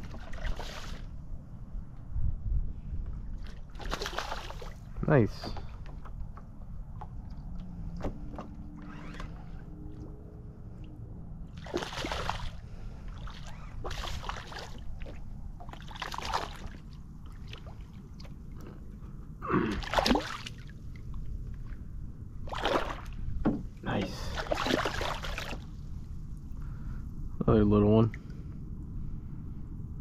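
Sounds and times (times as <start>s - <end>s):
steady low rumble: 0.0s - 30.0s
water splashing: 3.4s - 4.8s, 11.5s - 18.6s, 19.6s - 21.0s, 22.4s - 23.2s, 24.0s - 25.8s.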